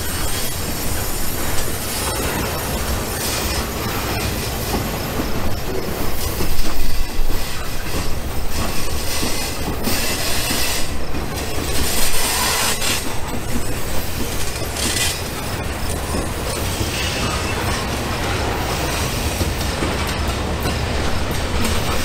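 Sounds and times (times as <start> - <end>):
model train cars rolling on track: 0.0 - 22.0.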